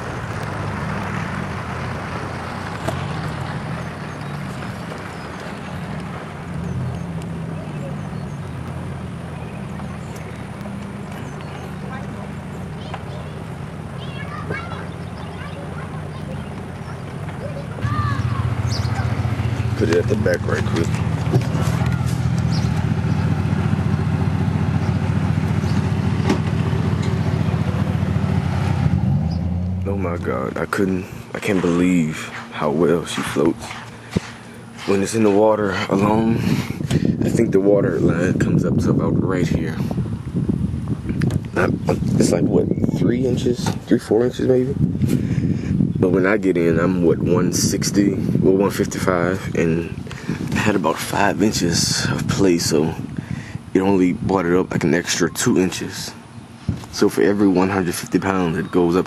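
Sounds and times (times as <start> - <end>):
outdoor noise: 0.0 - 59.0
low motor hum: 16.1 - 39.2.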